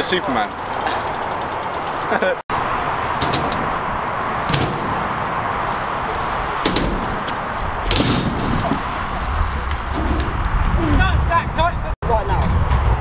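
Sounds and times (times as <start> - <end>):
bike wheels clacking on ramps: 3.1 - 11.0.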